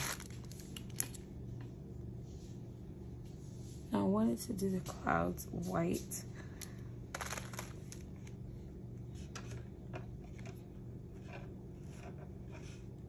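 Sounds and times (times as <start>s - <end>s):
steady low hum: 0.0s - 13.0s
scratchy rustles on a tabletop: 9.1s - 13.0s.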